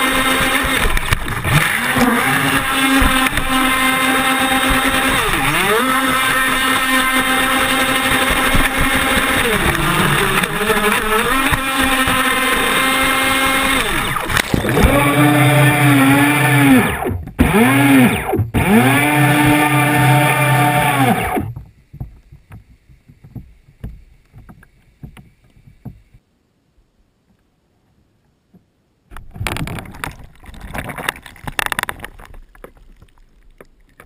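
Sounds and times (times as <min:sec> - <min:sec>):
toy boat motor whining: 0:00.0 - 0:21.6
water sounds: 0:00.0 - 0:26.2, 0:29.1 - 0:34.0.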